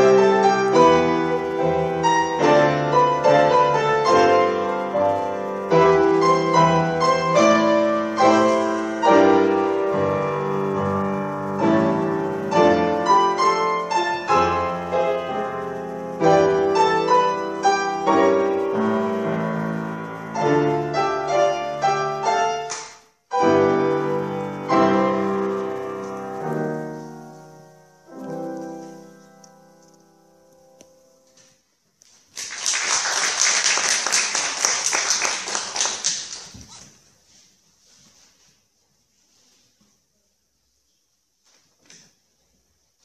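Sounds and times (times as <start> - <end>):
grand piano playing: 0.0 - 31.4.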